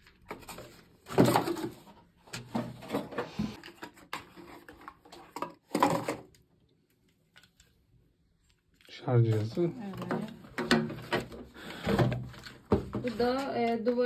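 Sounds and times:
plastic parts knocking: 0:09.9 - 0:13.8.

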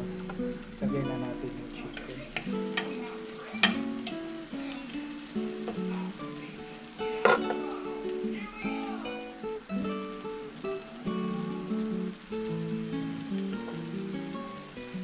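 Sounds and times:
acoustic guitar music: 0:00.0 - 0:15.0
vegetables sizzling in a pan: 0:00.0 - 0:15.0
spatula knocking on pan: 0:03.6 - 0:04.2, 0:07.2 - 0:07.6.

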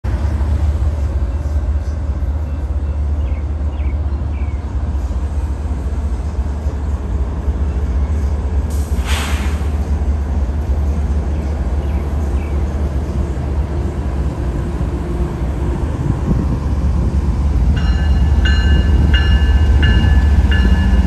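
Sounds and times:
diesel locomotive rumbling: 0:00.0 - 0:21.0
hiss of air: 0:08.6 - 0:10.0.

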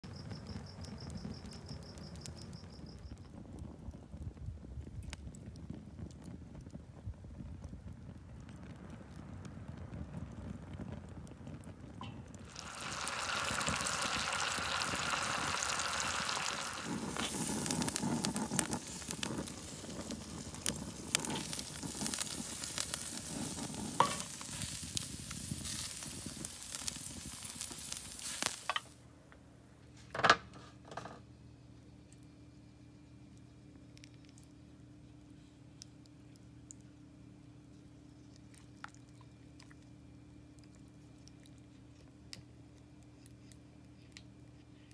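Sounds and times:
crackles and pops: 0:00.0 - 0:29.5, 0:31.8 - 0:44.9
crab legs sizzling on a grill: 0:12.1 - 0:29.0.

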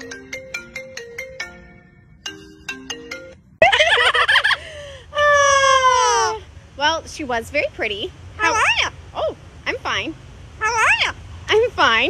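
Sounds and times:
smartphone ringtone: 0:00.0 - 0:03.4
harsh parrot call: 0:08.4 - 0:09.0, 0:10.6 - 0:11.2.

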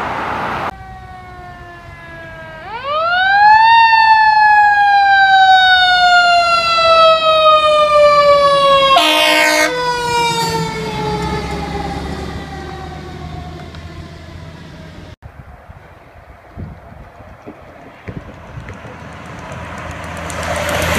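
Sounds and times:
fire engine siren wailing: 0:00.0 - 0:15.2, 0:19.7 - 0:20.9
street noise: 0:00.0 - 0:20.9
truck engine rumble: 0:00.0 - 0:20.9
air horn blast: 0:08.9 - 0:10.6.

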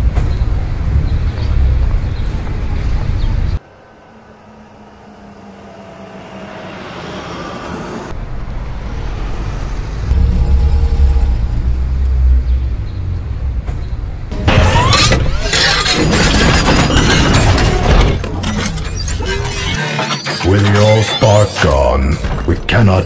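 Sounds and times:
truck diesel engine rumbling: 0:00.0 - 0:16.7.

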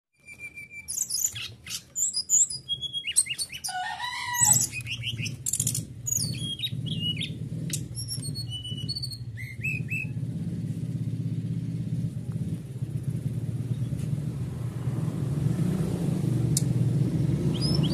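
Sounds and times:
bird singing whistles and trills: 0:00.2 - 0:10.2, 0:17.3 - 0:17.9
low motor rumble: 0:03.7 - 0:17.9.

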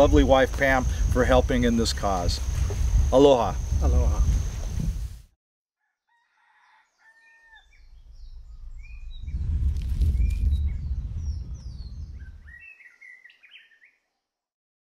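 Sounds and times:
birds chirping: 0:06.8 - 0:14.1
deep rumble: 0:07.7 - 0:12.6.

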